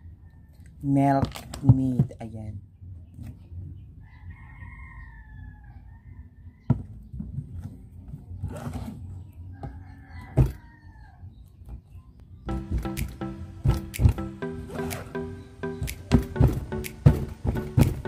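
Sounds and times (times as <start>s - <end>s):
rooster crowing: 4.0s - 6.8s, 9.5s - 11.3s.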